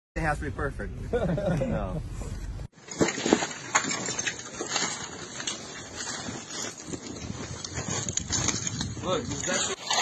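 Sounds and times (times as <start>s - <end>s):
rubble clattering and knocking: 2.7s - 10.0s.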